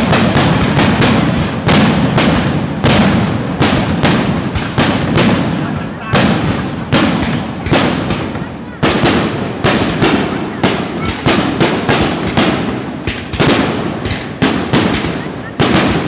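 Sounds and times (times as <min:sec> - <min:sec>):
fireworks shells bursting: 0:00.0 - 0:16.0.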